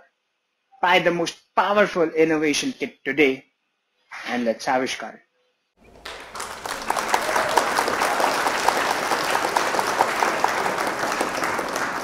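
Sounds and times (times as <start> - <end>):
crowd applauding: 5.8 - 12.0.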